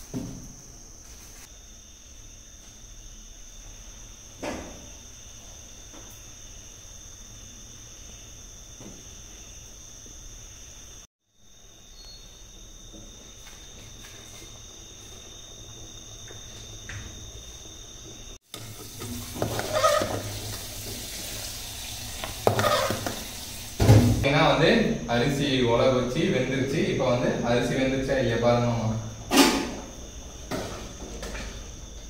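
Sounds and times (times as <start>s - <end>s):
rice boiling in water: 14.6s - 24.0s
ladle stirring pot: 18.6s - 21.4s.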